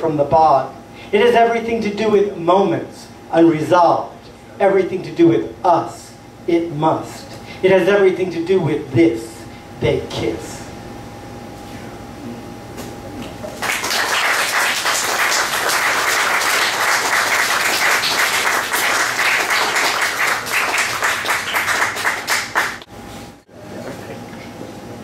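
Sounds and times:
audience applauding: 13.5 - 22.9.

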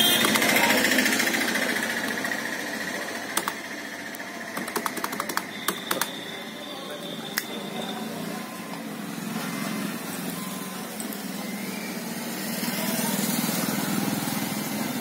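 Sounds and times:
small engine humming: 0.0 - 6.5, 7.8 - 15.0
sharp click: 3.4 - 3.6.

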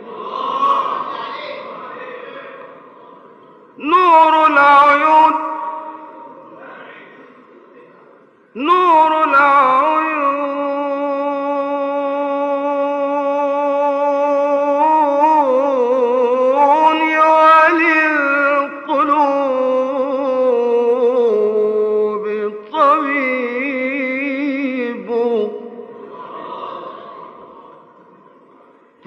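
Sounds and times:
man chanting unaccompanied: 3.8 - 7.4, 8.6 - 26.0.

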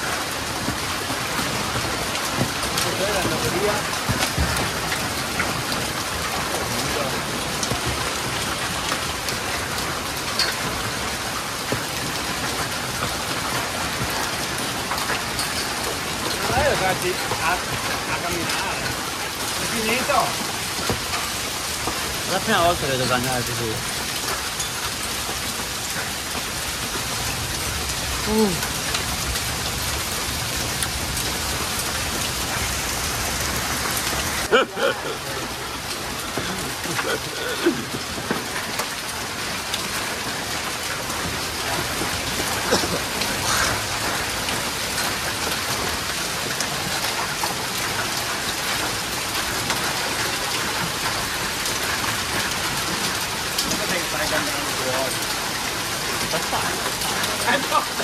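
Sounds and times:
heavy rain on paving and awning: 0.0 - 58.0
person speaking: 28.2 - 28.7, 34.4 - 38.0.

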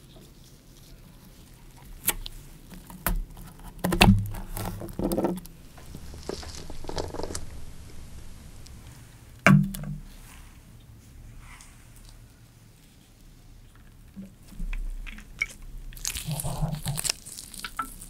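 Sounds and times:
knife crunching through lime: 15.9 - 18.0.

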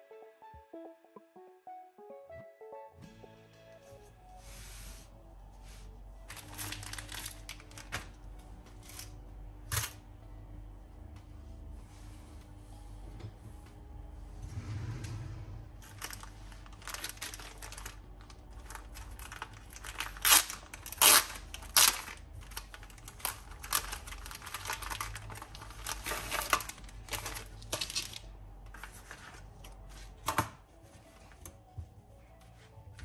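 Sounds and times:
plastic packaging crinkling: 6.3 - 8.1, 15.8 - 29.2.

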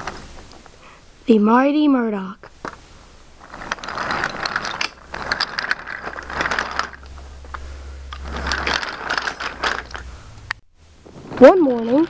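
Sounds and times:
toy train wheels clattering on track: 3.4 - 10.0.

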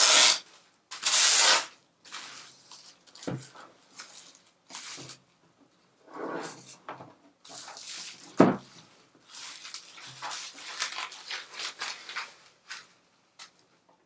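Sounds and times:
plastic wrap crinkling: 7.6 - 13.6.

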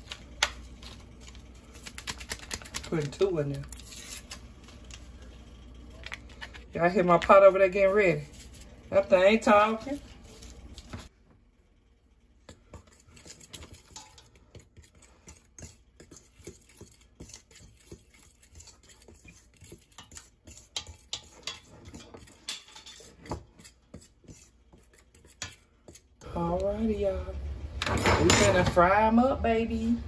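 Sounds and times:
fork scraping metal pot: 12.7 - 26.1.

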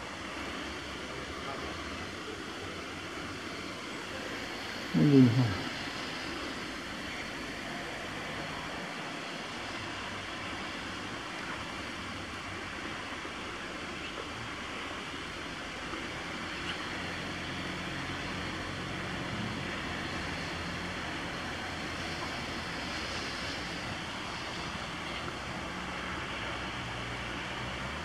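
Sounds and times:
rain falling on trees and pavement: 0.0 - 28.0
wind in foliage: 0.0 - 28.0.

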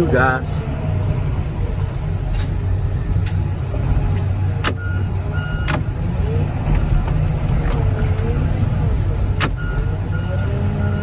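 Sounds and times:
short beeps: 9.6 - 11.0.

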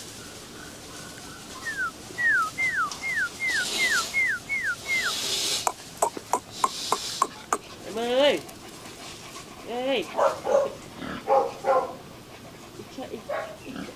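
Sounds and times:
puppy whining: 1.5 - 5.2, 6.0 - 7.7.

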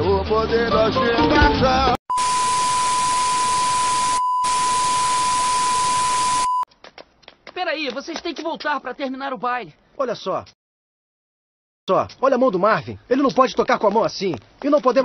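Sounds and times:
steady high test-tone beep: 2.1 - 6.6.

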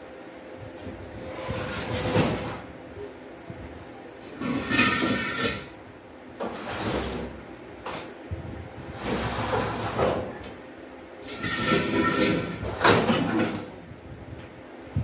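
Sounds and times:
objects scraping and sliding: 1.1 - 2.7, 4.3 - 5.8, 6.4 - 8.1, 8.8 - 10.5, 11.2 - 13.7.

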